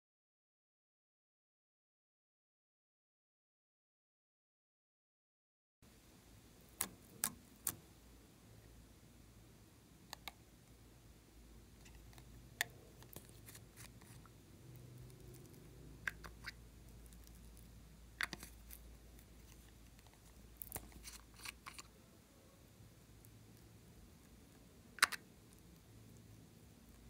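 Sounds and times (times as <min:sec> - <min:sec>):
low room hum: 0:05.8 - 0:27.0.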